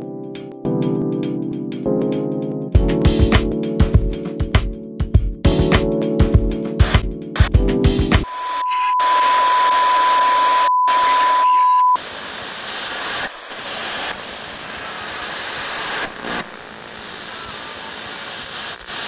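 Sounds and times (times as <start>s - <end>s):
electronic static hiss: 6.8s - 19.0s
high test-tone beep: 8.3s - 12.0s.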